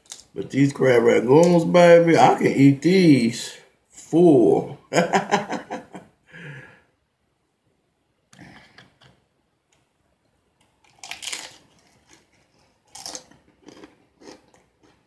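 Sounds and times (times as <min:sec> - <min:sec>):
person chewing crunchy food: 0:10.6 - 0:15.0.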